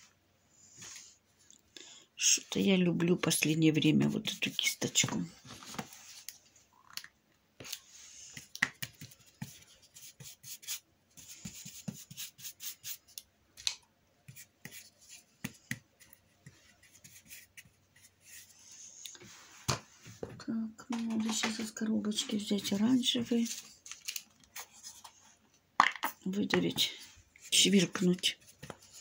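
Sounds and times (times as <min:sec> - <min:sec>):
paintbrush scrubbing paint: 0:09.4 - 0:13.1.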